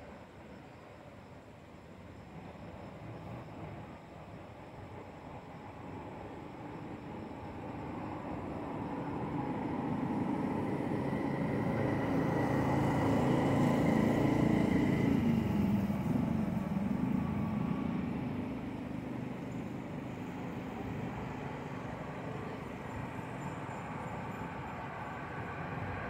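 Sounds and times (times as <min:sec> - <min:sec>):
vehicle engine passing by: 0:10.3 - 0:18.2.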